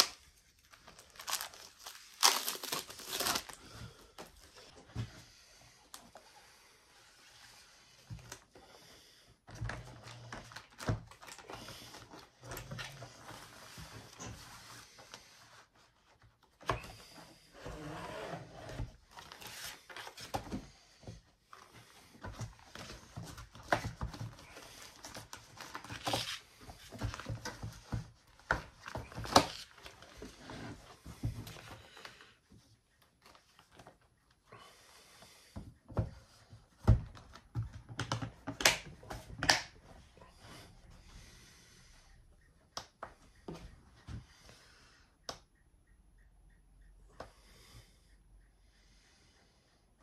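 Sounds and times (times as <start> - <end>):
plastic bag rustling and crinkling: 0.0 - 4.1.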